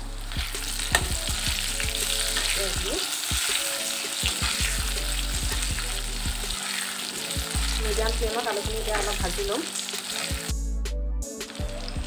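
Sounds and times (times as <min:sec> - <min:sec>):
potatoes sizzling in oil: 0:00.1 - 0:10.5
metal spatula scraping pan: 0:00.3 - 0:07.9.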